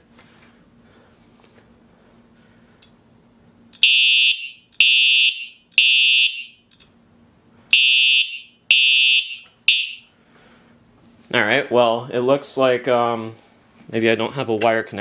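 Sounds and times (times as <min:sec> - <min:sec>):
fire alarm horn blasts: 0:03.8 - 0:06.7, 0:07.7 - 0:10.2.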